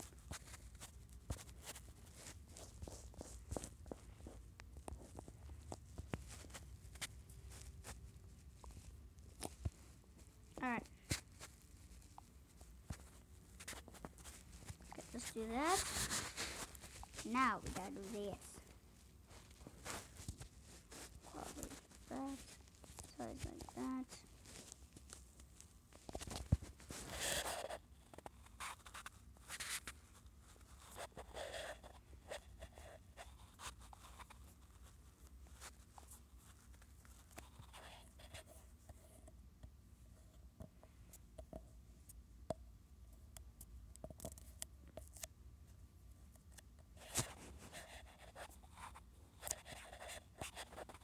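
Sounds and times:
low steady hum: 0.0 - 51.0.

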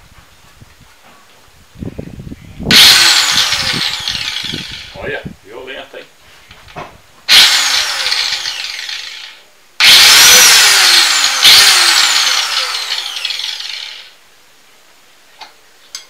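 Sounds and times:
angle grinder motor whine: 2.7 - 5.0, 7.3 - 14.2.

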